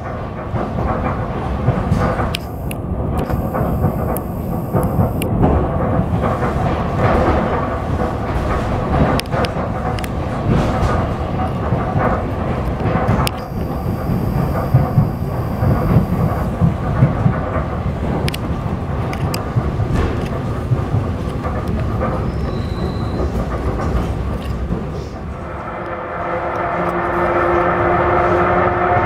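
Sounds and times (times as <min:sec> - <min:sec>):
train wheels rumbling: 0:00.0 - 0:29.0
sharp clicks: 0:02.3 - 0:05.4, 0:12.7 - 0:16.5.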